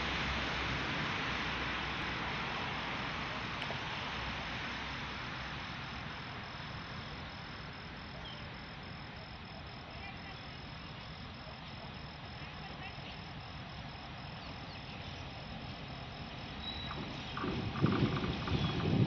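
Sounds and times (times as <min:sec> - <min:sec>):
insect chirping: 0:00.0 - 0:19.0
rumbling hiss: 0:00.0 - 0:19.0.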